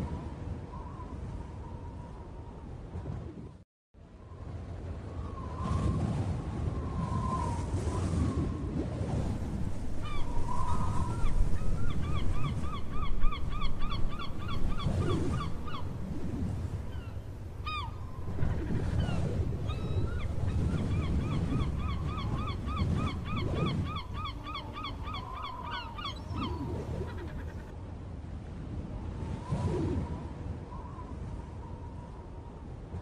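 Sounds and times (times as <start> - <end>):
bird calling: 16.9 - 27.7.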